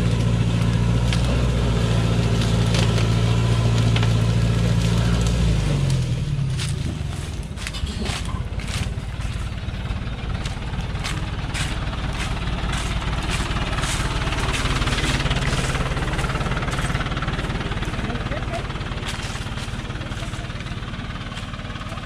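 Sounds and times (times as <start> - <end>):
diesel truck engine running: 0.0 - 22.0
sharp snaps and cracks: 0.1 - 1.5, 2.2 - 6.0.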